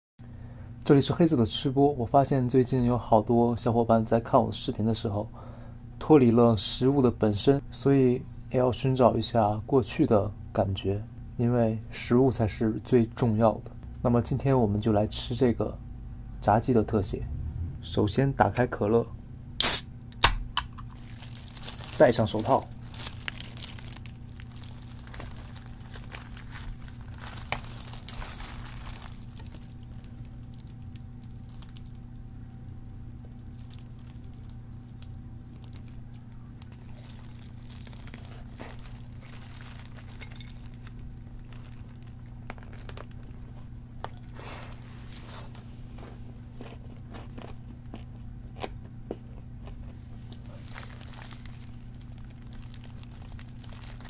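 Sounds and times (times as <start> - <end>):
steady low hum: 0.2 - 54.0
plastic glove crinkling: 20.7 - 46.4, 50.2 - 54.0
crunching bites of fried chicken: 33.0 - 44.9, 46.5 - 54.0.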